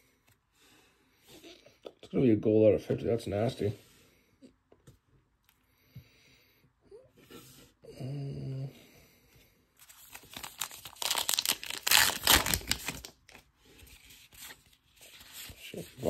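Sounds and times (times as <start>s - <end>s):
card pack wrapper crinkling: 9.8s - 15.4s.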